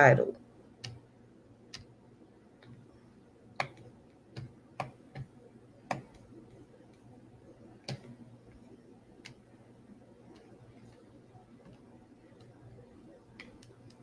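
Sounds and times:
computer mouse clicks: 0.8 - 1.0, 1.7 - 1.9, 3.6 - 7.1, 7.8 - 9.5, 10.2 - 14.0.

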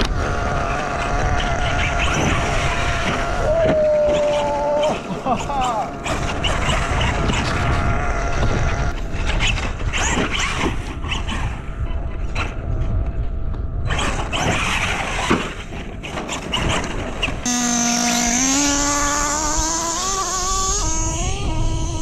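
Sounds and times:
rc trucks running on sand: 0.0 - 22.0
wind rumble on microphone: 0.0 - 22.0
steady engine note rising: 17.5 - 22.0.

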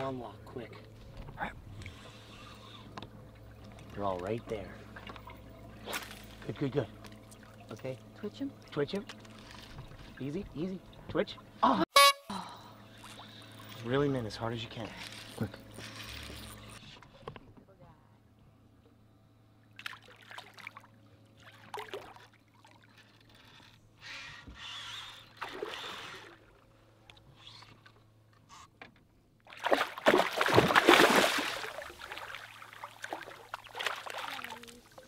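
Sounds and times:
fish splashing at the surface: 29.5 - 34.8.

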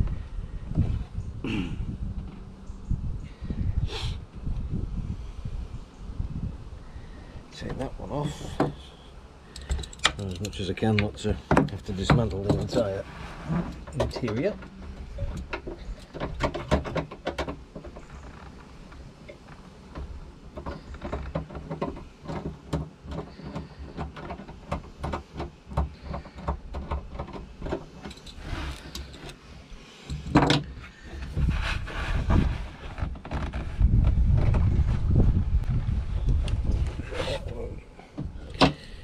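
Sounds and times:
clicks and scrapes of hoses: 7.6 - 34.6
sleeve rubbing and bumping: 31.2 - 35.5.

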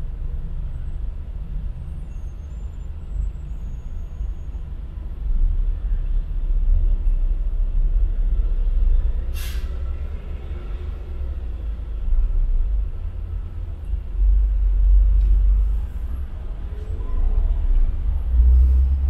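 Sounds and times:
car rumbling in traffic: 0.0 - 19.0
air brakes hissing: 9.3 - 9.9.

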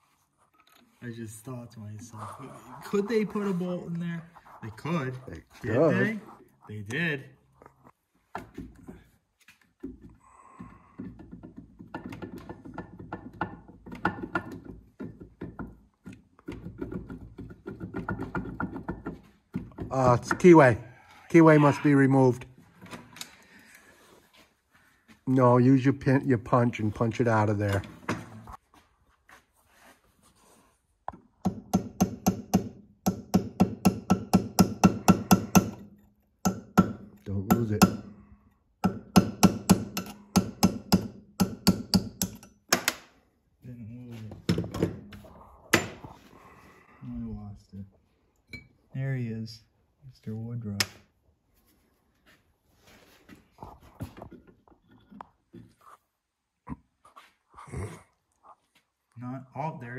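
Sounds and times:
hammer tapping steel punch: 31.4 - 38.1, 38.8 - 43.0.

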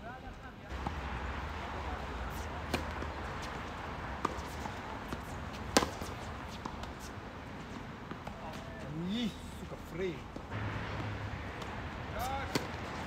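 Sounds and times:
tennis ball pops: 4.2 - 6.9.

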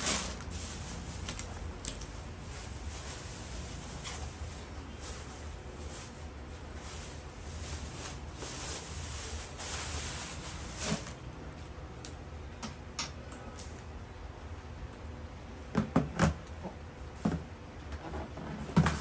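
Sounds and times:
plastic bags rustling: 0.0 - 11.3.

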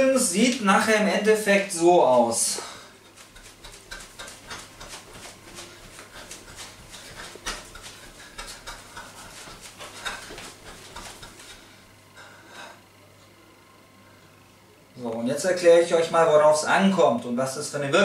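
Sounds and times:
clothing rustling rhythmically: 2.2 - 12.2
quick panting breaths: 2.6 - 11.7.

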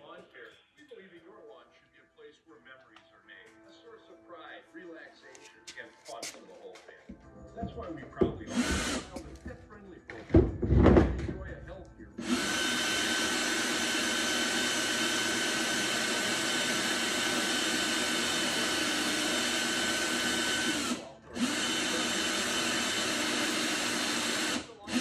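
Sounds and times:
power drill whining: 8.2 - 9.5, 12.2 - 25.0.

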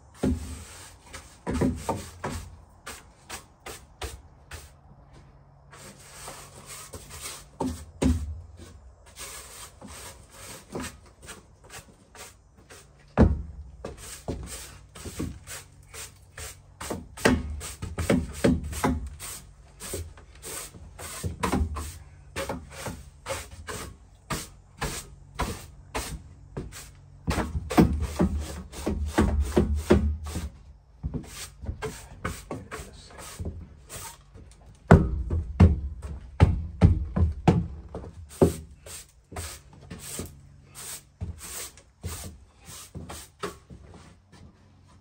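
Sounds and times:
irregular scraping and knocking: 0.1 - 4.7, 5.7 - 45.0
heavy thumps: 34.8 - 38.7.

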